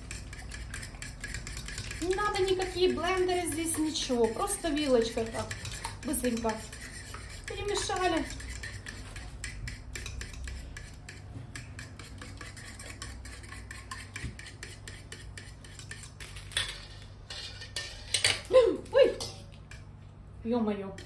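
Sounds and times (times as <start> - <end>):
fork knocking bowl: 0.0 - 16.2
fork whisking batter in bowl: 0.0 - 19.9.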